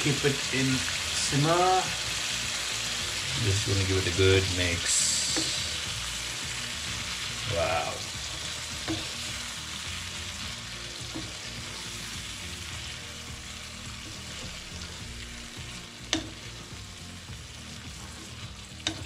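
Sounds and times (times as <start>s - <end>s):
prawns sizzling in a pan: 0.0s - 19.0s.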